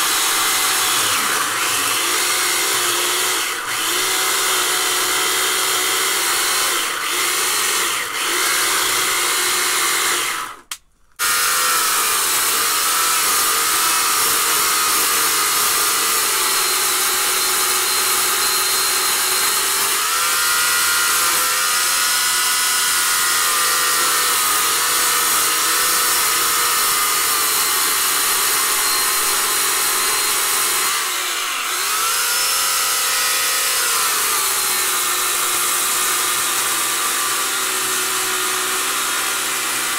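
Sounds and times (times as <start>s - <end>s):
electric chainsaw cutting log: 0.0s - 39.9s.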